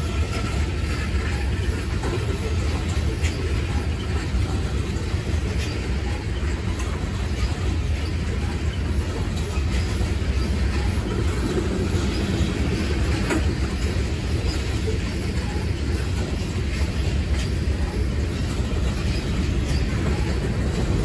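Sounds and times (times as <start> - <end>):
train wheels rumbling on rail: 0.0 - 21.0.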